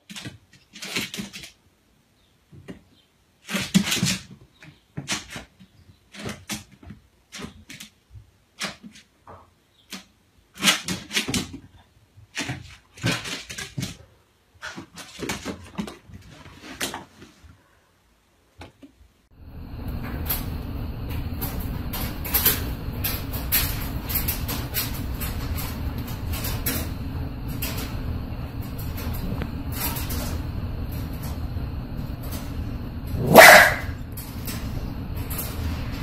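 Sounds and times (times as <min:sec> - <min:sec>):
puppy barking: 0:33.2 - 0:34.0.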